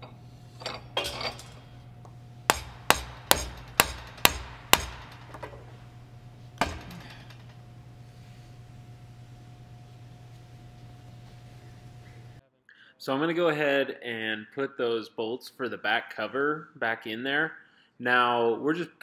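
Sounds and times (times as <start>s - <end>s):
parts clattering: 0.0s - 12.4s
mallet striking metal: 2.5s - 6.0s, 6.6s - 7.5s.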